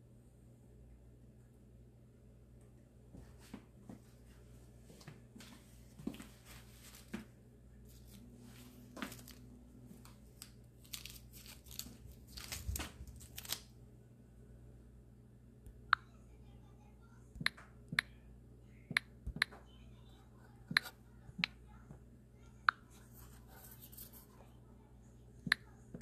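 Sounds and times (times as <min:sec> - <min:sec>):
crinkling and rustling: 0:05.0 - 0:13.7.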